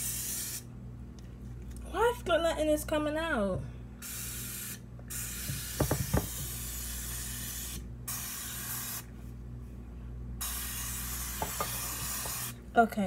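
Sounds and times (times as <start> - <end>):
aerosol spray can hissing: 10.4 - 12.6.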